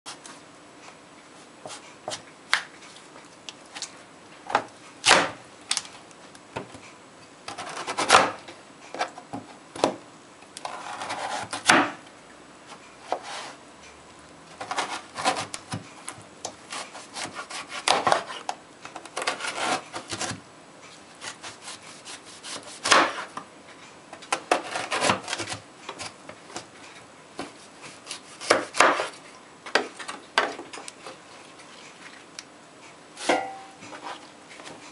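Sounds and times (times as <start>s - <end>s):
knife sawing through vegetable: 10.6s - 11.7s, 13.0s - 13.6s, 14.6s - 15.6s, 16.7s - 18.5s, 19.2s - 20.4s, 21.2s - 23.3s, 24.6s - 26.1s, 27.6s - 29.2s.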